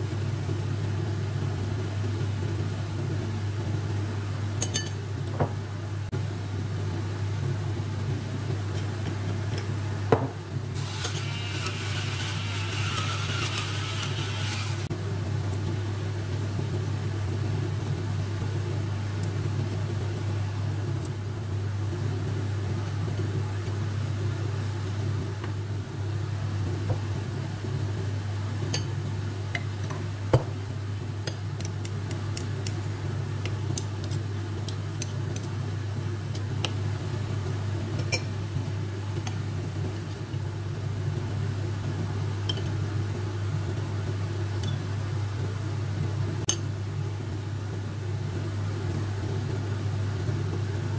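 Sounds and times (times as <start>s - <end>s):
low electrical hum: 0.0s - 50.9s
metal spoons clinking on ceramic bowl: 4.6s - 5.0s.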